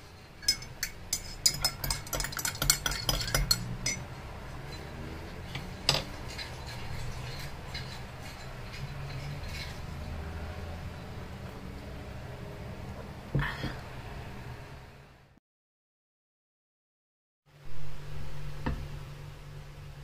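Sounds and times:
metal spoon clinking in a mug: 0.4 - 4.0, 4.7 - 10.2.

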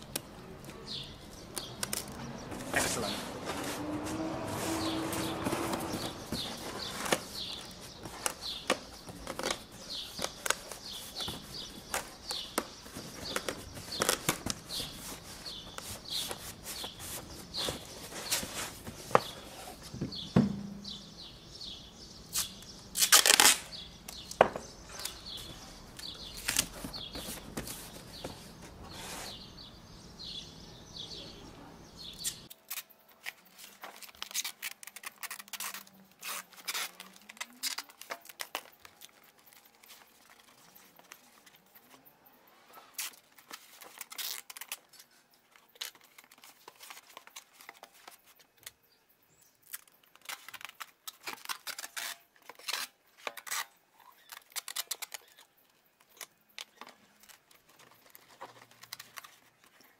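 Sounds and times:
tape ripping: 0.0 - 19.9, 22.3 - 28.3, 32.2 - 41.3, 42.9 - 48.8, 49.6 - 59.8
cardboard and tape crackling: 0.0 - 20.1, 22.3 - 29.4, 32.2 - 42.0, 42.8 - 48.8, 49.6 - 59.9
tape pulled off roll: 22.3 - 23.7.

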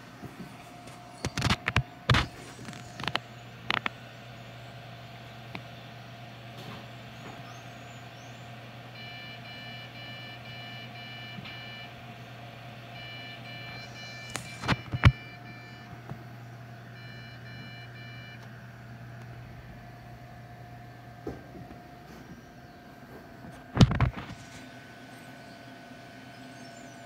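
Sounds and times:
computer fan hum: 0.0 - 27.0
short electronic beeps: 13.0 - 15.9, 17.0 - 18.4.

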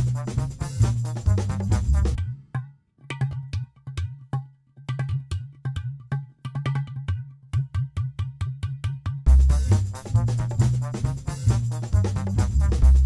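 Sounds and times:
background music: 0.0 - 2.5, 9.3 - 13.0.

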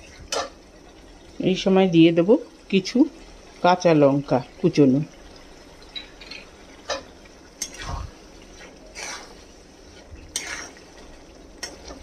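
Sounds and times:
metal spatula scraping steel pan: 8.6 - 9.4, 10.3 - 10.8.

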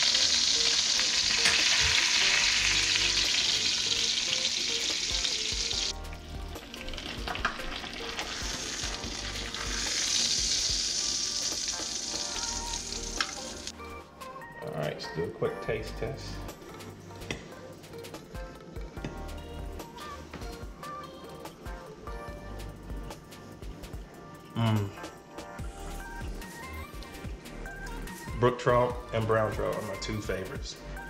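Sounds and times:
fish sizzling in a pan: 0.0 - 13.7.

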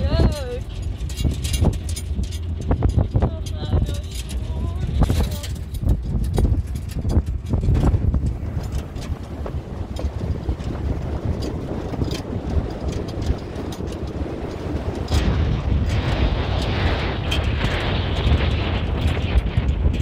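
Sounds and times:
rushing hiss of wind: 0.0 - 20.0
wind buffeting microphone: 0.0 - 20.0.

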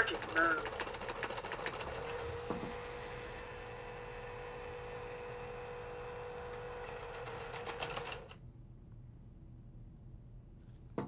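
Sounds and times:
rapid clicking: 0.0 - 2.2
robot vacuum motors whining: 1.8 - 7.2.

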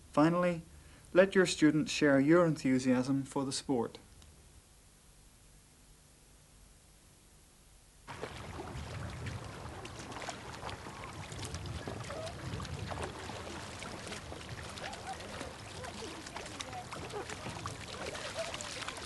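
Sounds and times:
paddle splashing water: 8.1 - 19.0
water dripping and trickling: 8.1 - 19.0.

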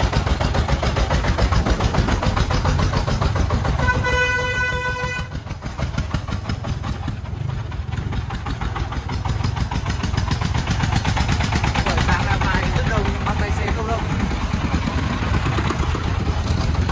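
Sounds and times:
diesel truck engine running: 0.0 - 16.9.

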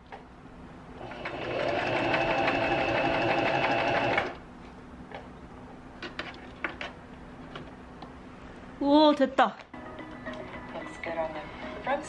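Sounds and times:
sewing machine stitching: 1.0 - 4.4.

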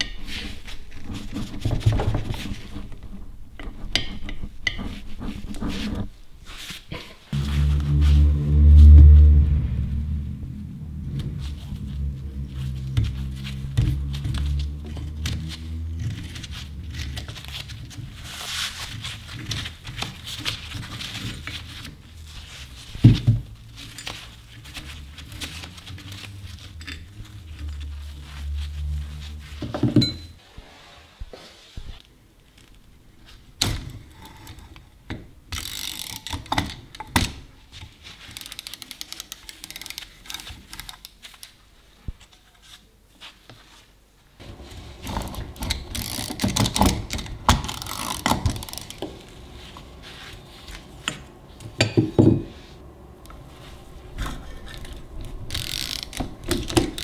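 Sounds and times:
metal scraping: 2.4 - 18.8.

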